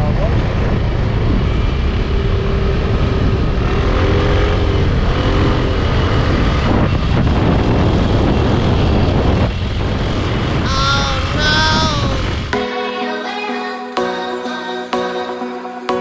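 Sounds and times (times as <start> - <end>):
wind on microphone: 0.0 - 12.6
motorcycle engine humming: 0.0 - 14.4.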